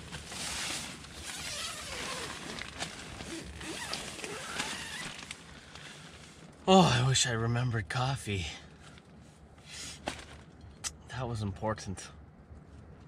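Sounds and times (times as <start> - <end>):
nylon fabric rustling: 0.0 - 5.5
zip rasping: 0.2 - 5.4.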